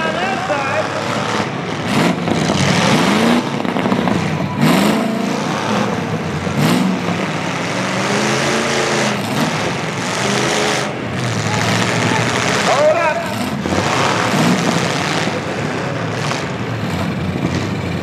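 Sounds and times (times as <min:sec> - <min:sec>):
truck engines revving: 0:00.0 - 0:18.0.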